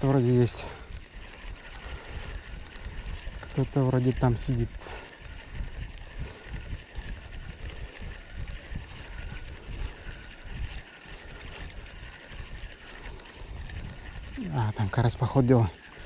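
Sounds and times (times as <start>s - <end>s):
fishing reel clicking: 0.0s - 16.0s.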